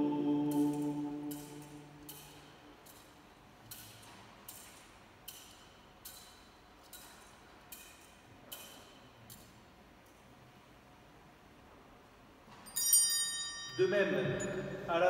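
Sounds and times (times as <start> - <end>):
metal chains clinking: 12.6 - 13.8.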